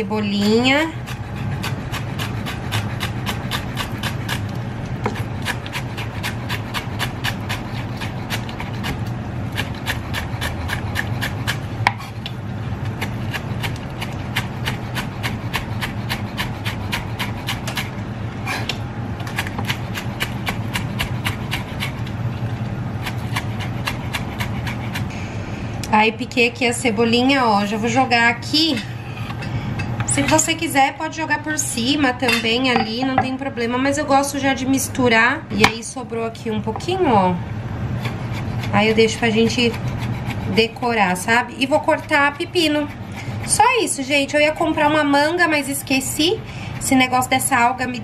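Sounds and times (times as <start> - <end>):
knife chopping on wooden board: 1.1 - 12.2.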